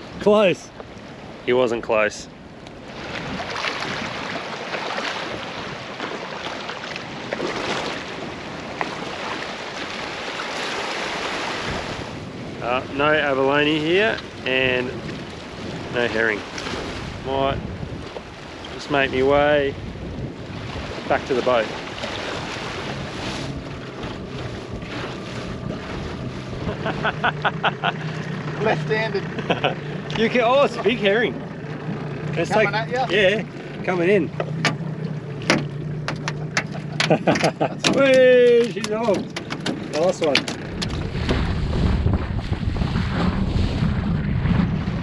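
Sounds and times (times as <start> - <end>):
water rushing along hull: 0.0 - 45.0
outboard motor running: 2.2 - 45.0
wind buffeting microphone: 2.3 - 45.0
seawater lapping over rocks: 2.5 - 17.2, 17.8 - 45.0
small water splashes: 2.7 - 12.2, 14.1 - 17.2, 20.4 - 26.6.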